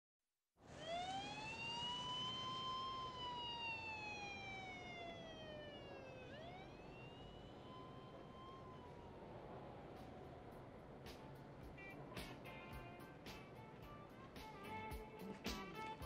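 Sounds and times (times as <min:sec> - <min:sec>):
emergency siren wailing: 0:00.7 - 0:10.5.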